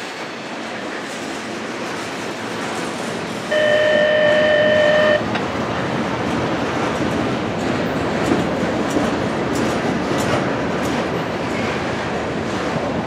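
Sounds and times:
train wheels on rail: 0.0 - 13.0
loud steady tone: 3.5 - 5.4.

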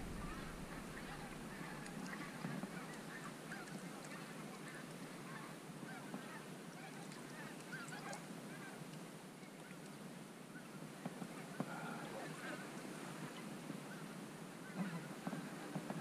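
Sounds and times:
distant geese honking: 0.0 - 8.8.

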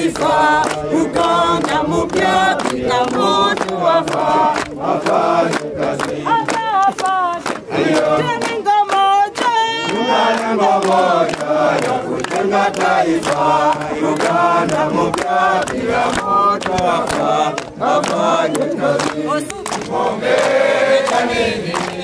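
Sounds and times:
clapping in time: 0.0 - 22.0
group chanting in unison: 0.0 - 22.0
single voice singing: 0.0 - 22.0.

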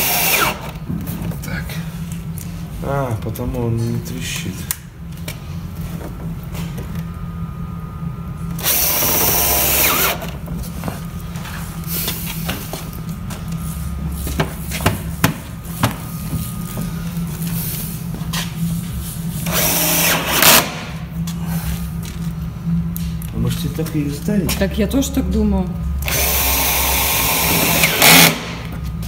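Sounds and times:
cordless drill drilling: 0.0 - 0.7, 8.6 - 10.3, 19.5 - 20.6, 26.0 - 28.5
steady low hum: 0.0 - 29.0.

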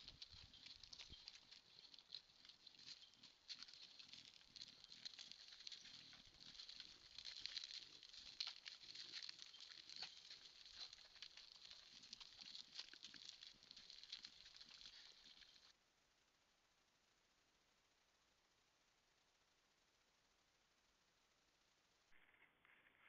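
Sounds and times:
animals rustling: 0.0 - 15.7
hooves on gravel: 0.0 - 15.7.

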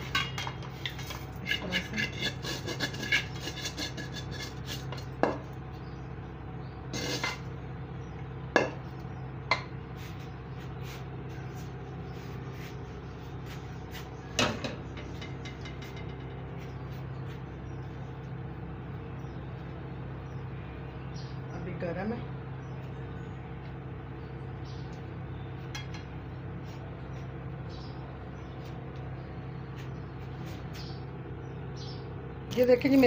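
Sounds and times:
spoon scraping a steel pan: 0.0 - 5.3, 6.9 - 7.5
steady low hum: 0.0 - 33.0.

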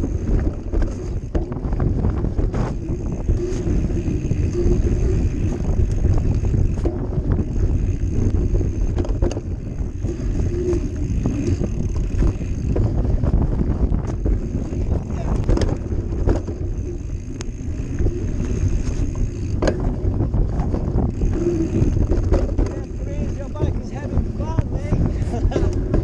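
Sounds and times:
bike rattles and knocks: 0.0 - 26.0
wind buffeting microphone: 0.0 - 26.0.

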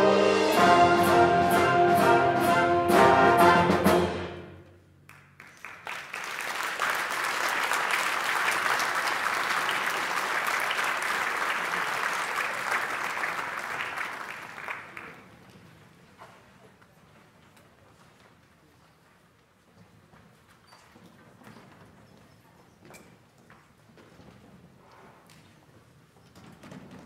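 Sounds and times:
audience applauding: 5.1 - 15.4.

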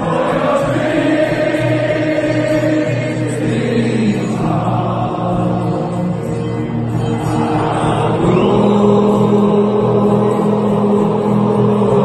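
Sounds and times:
crowd chanting: 0.0 - 12.0.

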